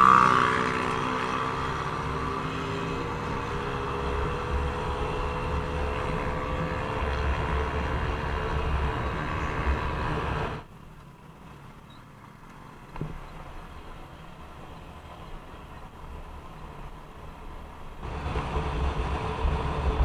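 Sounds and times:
wind rush on microphone: 18.0 - 20.0.

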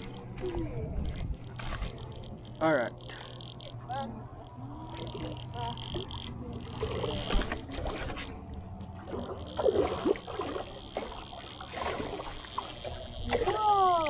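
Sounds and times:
steady high-pitched hum: 0.0 - 14.0
water splashing: 5.9 - 14.0.

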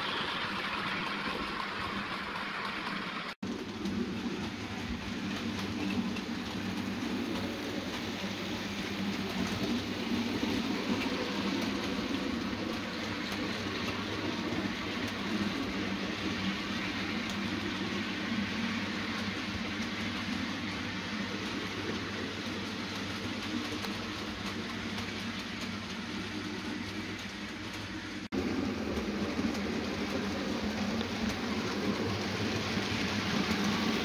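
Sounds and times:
model train motor hum: 0.0 - 34.0
rolling wheel rumble: 0.0 - 34.0
faint clicks over rail joints: 1.2 - 34.0.

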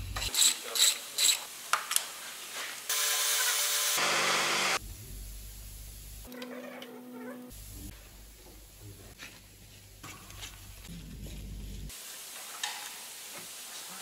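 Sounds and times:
power tool whirring hiss: 2.9 - 4.8.

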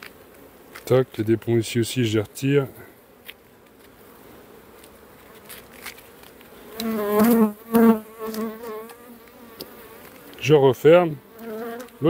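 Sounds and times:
bees humming: 0.0 - 12.0
bee buzzing close by: 1.6 - 12.0.

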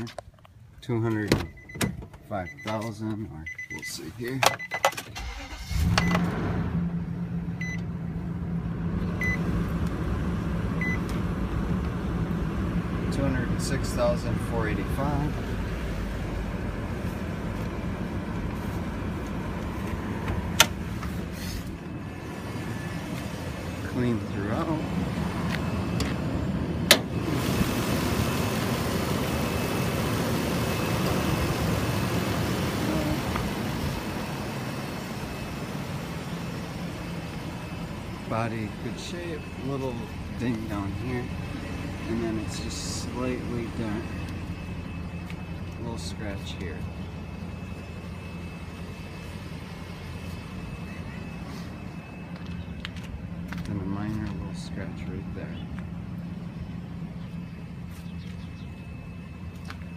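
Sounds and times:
dashboard warning chime beeps: 1.2 - 5.1, 7.6 - 7.9, 9.2 - 9.4, 10.8 - 11.1, 35.2 - 56.5
car engine idling: 5.1 - 59.9.

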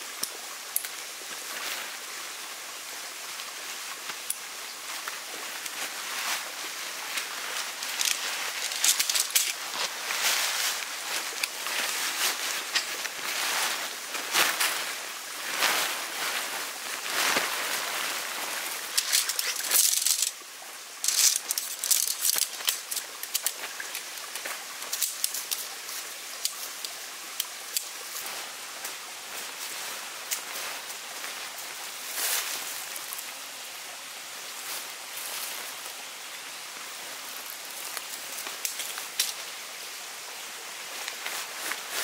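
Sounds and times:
tent fabric rustling: 4.9 - 26.8.

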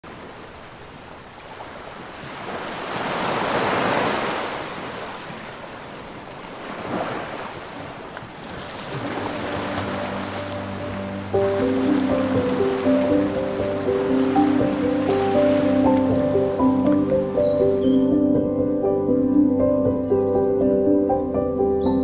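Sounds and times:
small waves breaking on beach: 0.0 - 16.3
soft music: 8.8 - 22.0.

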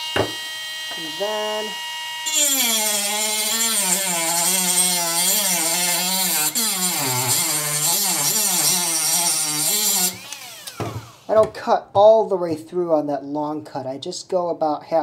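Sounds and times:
rotary tool motor whine: 0.0 - 11.3
cutting wheel hissing on metal: 0.9 - 11.4.

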